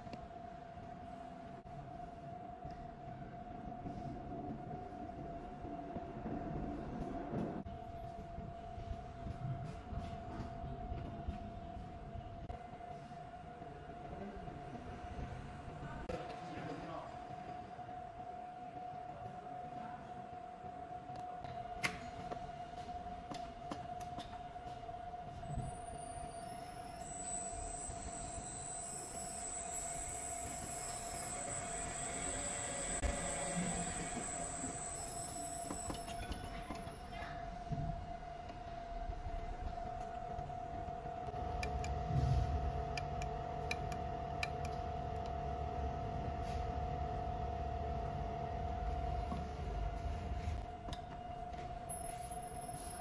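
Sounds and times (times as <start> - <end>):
high-pitched whine: 25.2 - 53.0
mixer motors whining: 26.5 - 37.3
low rumble: 37.5 - 43.6.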